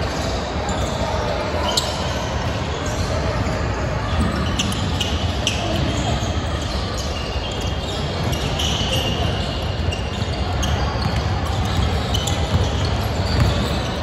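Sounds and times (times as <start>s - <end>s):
sneaker squeaks: 0.1s - 14.0s
basketball bouncing on wood floor: 11.0s - 13.8s.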